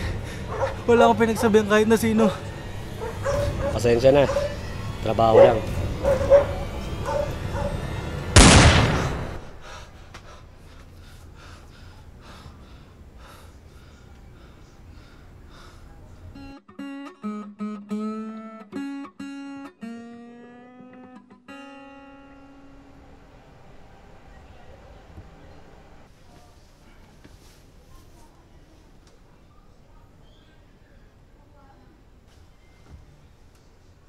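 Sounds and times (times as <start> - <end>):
pistol shot: 8.4 - 9.5
acoustic guitar plucked notes: 16.6 - 23.0.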